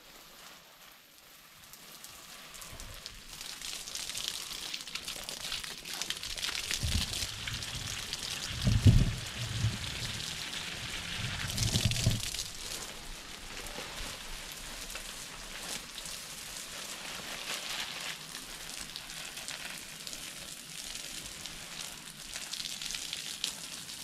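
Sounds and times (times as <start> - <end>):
hose spray pattering on leaves: 0.0 - 24.0
dull low bumps: 6.7 - 12.4.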